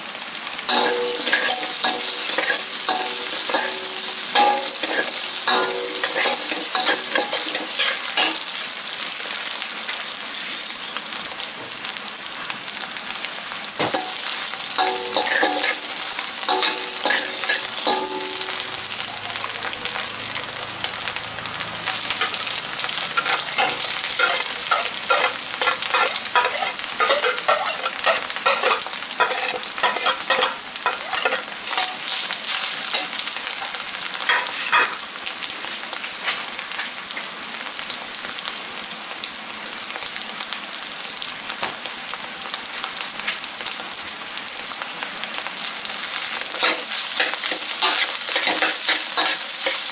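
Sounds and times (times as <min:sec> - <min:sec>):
food sizzling in a wok: 0:00.0 - 0:49.9
metal spatula scraping wok: 0:00.7 - 0:08.5, 0:13.8 - 0:18.7, 0:21.9 - 0:33.2, 0:34.3 - 0:35.0, 0:46.5 - 0:49.9.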